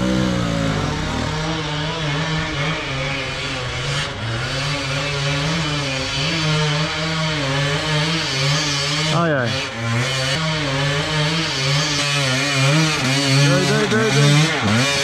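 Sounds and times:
dirt bike engines revving: 0.0 - 15.0.

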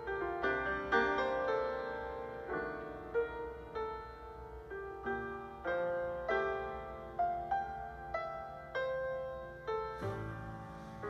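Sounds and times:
soft piano music: 0.0 - 11.0.

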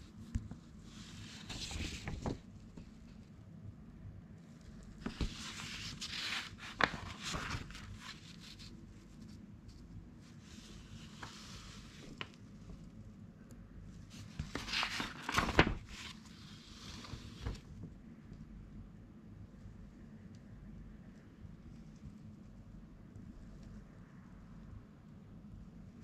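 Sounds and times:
magazine pages turning: 0.4 - 2.9, 5.0 - 9.3, 10.3 - 12.4, 14.1 - 17.8.

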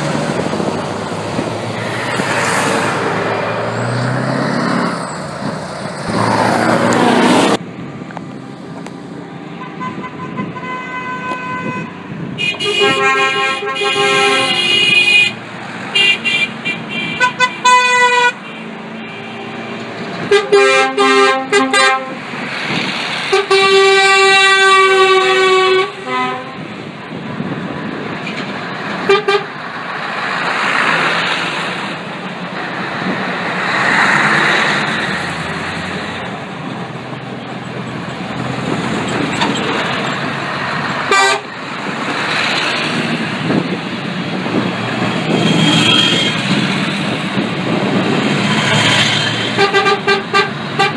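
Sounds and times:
heavy trucks passing: 0.0 - 50.9
truck horns tooting: 9.3 - 22.3, 23.2 - 26.8, 29.0 - 29.6, 40.9 - 41.6, 44.9 - 47.2, 48.0 - 50.9.

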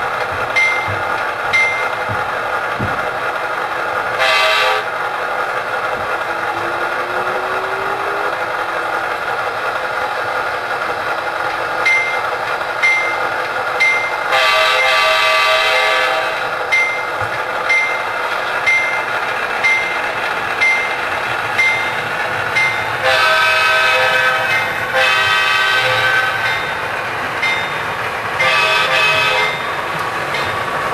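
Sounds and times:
model diesel engine running: 0.0 - 30.9
bell dinging: 0.6 - 2.0
horn blasts: 4.2 - 4.9, 14.3 - 16.5, 23.0 - 26.5, 28.4 - 29.7.

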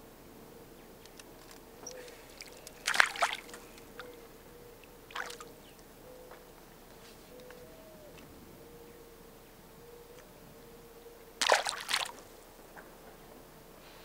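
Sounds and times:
faint hum: 0.0 - 14.0
fish splashing in water: 2.2 - 3.8, 5.1 - 5.5, 11.4 - 12.3.

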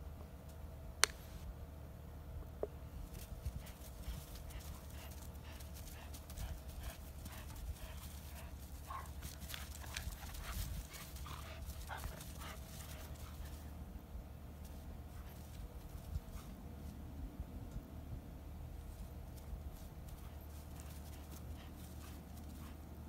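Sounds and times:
paws scuffling on dry grass: 3.0 - 13.8, 18.7 - 23.0.

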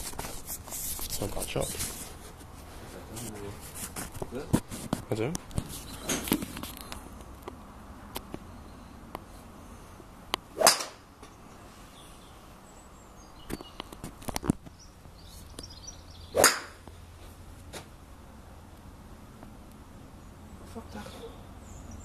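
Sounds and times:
golf club swishing: 10.5 - 11.0, 16.4 - 16.8.

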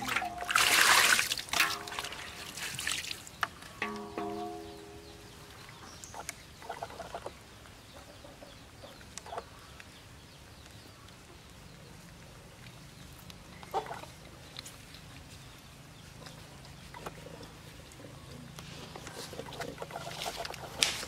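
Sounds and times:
chickens clucking: 17.0 - 21.0.

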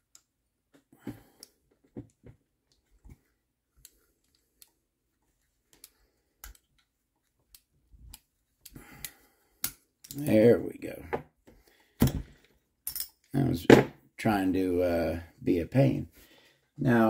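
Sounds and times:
faint metal clicks and taps: 0.0 - 10.3.

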